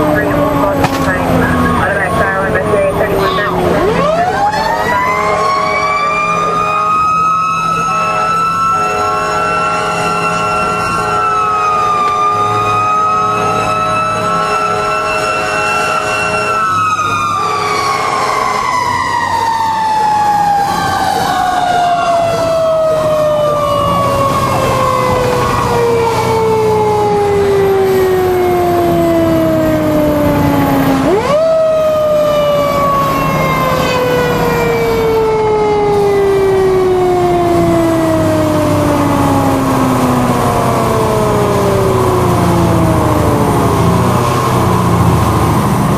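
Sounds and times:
rotary siren wailing: 0.0s - 45.9s
horn-like chord: 5.1s - 7.2s, 7.8s - 18.8s.

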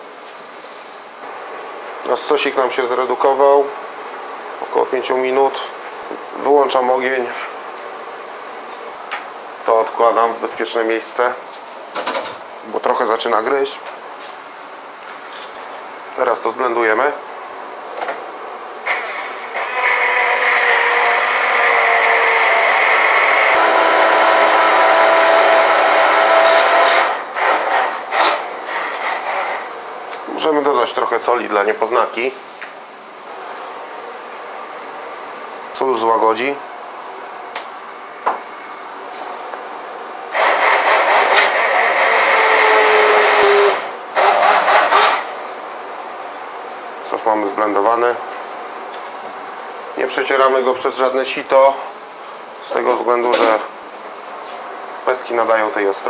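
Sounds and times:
immersion blender running: 18.9s - 29.7s, 40.3s - 45.3s.

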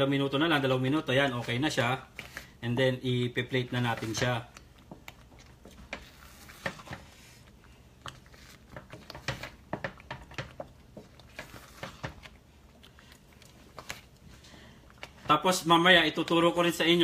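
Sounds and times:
wooden spatula scraping saucepan: 3.7s - 7.5s, 8.1s - 12.4s.

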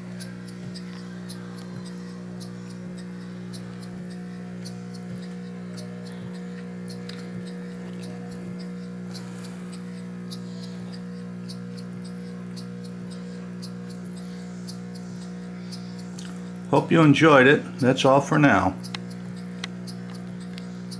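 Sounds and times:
air pump buzzing hum: 0.0s - 20.9s.

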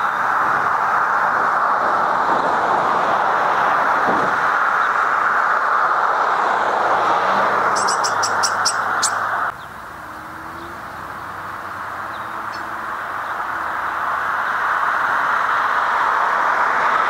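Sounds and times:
loud steady rushing noise: 0.0s - 17.0s
bird high short notes: 7.8s - 9.2s.

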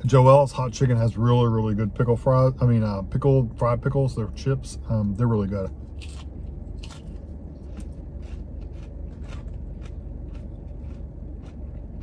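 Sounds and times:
steady low hum: 0.0s - 12.0s
crunchy chewing: 5.9s - 12.0s.

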